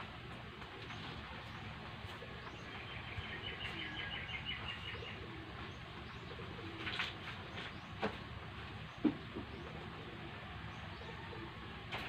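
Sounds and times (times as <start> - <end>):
low background noise: 0.0 - 12.0
bird chirping: 0.8 - 8.2.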